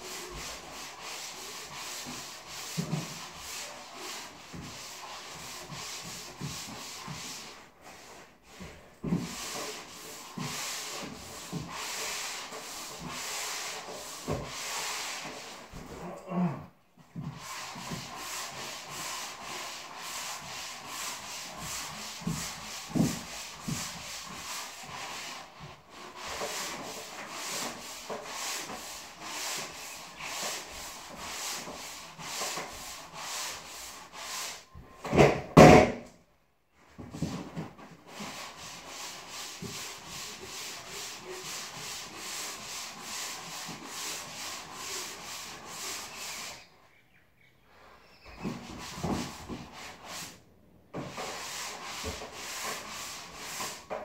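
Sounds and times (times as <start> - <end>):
sandpaper scraping drywall: 0.0 - 16.2, 17.0 - 36.1, 36.9 - 47.0, 47.7 - 54.0.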